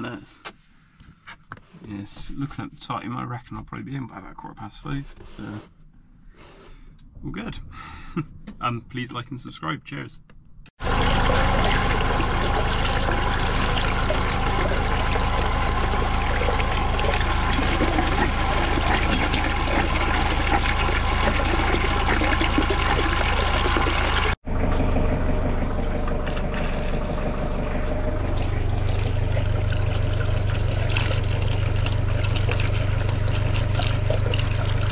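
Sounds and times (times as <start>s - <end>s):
water splashing into a drain: 10.8s - 24.4s, 25.7s - 34.9s.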